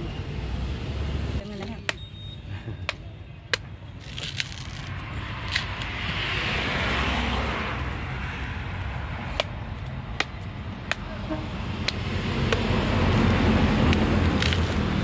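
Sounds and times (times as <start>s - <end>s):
knife striking fruit husk: 10.2s - 11.2s, 11.8s - 12.8s.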